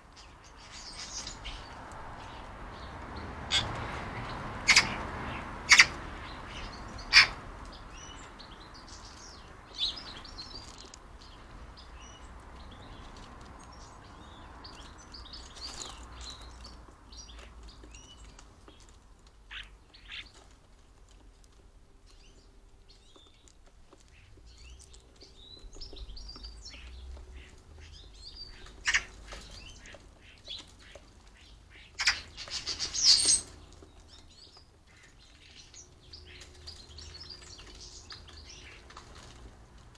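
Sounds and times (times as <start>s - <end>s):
small birds chirping: 0.0s - 39.9s
bird calls and wing flaps: 28.5s - 34.2s.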